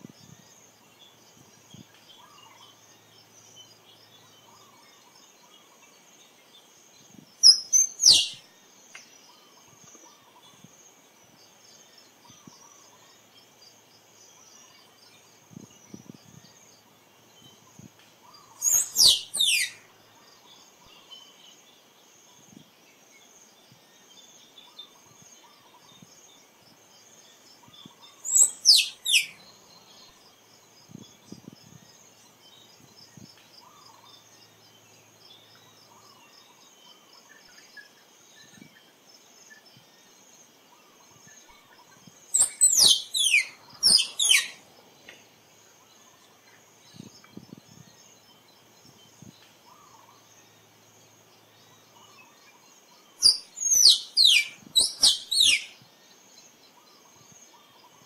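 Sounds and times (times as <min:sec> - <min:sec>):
squirrel chirping: 0:07.4 - 0:08.4, 0:18.6 - 0:19.8, 0:28.2 - 0:29.4, 0:42.4 - 0:44.6, 0:53.2 - 0:55.8.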